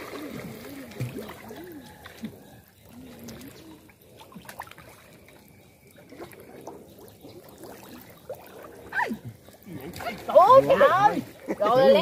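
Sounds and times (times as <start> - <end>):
shallow water sloshing: 0.0 - 12.0.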